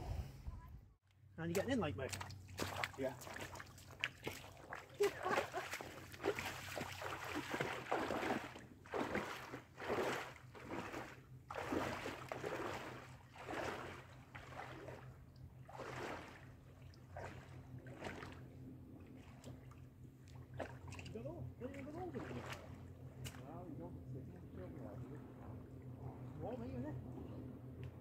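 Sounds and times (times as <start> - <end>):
steady low hum: 0.0 - 28.0
person wading splashing water: 2.0 - 23.5.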